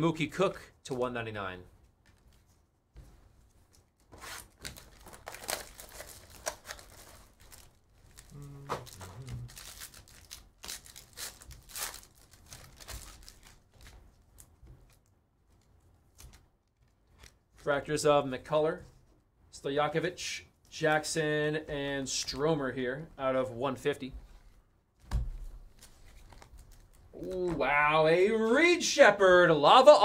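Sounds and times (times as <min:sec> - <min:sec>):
card packs ripping open: 0:04.2 - 0:14.5
foil wrappers crinkling: 0:04.2 - 0:15.1.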